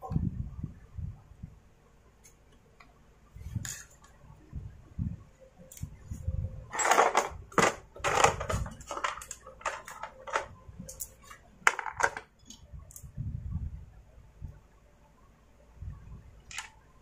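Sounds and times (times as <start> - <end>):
plastic parts clicking and scraping: 6.7 - 13.1, 16.5 - 16.8.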